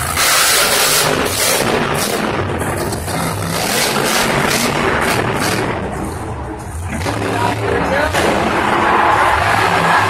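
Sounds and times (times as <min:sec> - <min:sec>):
monster truck engine running hard: 0:00.0 - 0:10.0.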